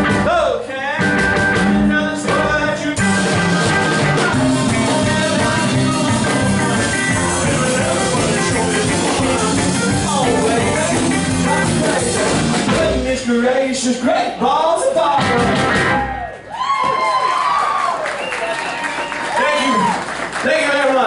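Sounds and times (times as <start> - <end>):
live rockabilly band: 0.0 - 21.0
person singing: 0.2 - 13.4.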